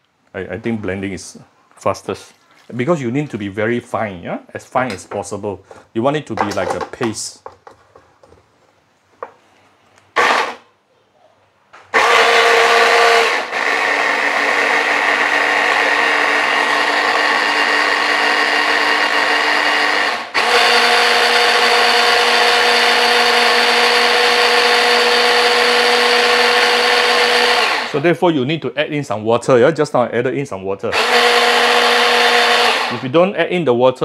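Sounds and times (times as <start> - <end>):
electric hand blender whining: 10.2 - 10.6, 11.9 - 28.0, 30.9 - 33.0.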